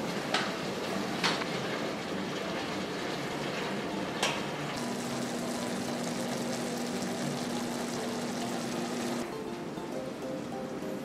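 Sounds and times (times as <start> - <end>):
sauce simmering and sizzling: 4.7 - 9.3.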